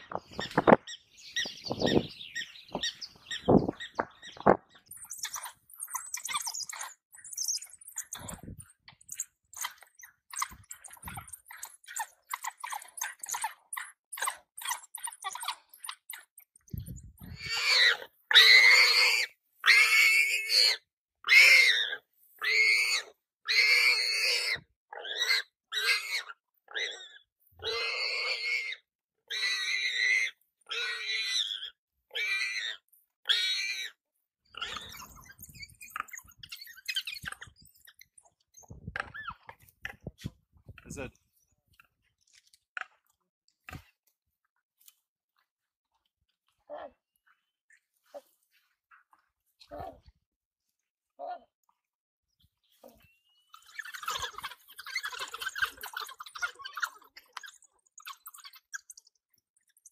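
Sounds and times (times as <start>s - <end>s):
animal squealing in distress: 9.6s - 34.0s, 34.6s - 38.0s, 53.7s - 57.1s.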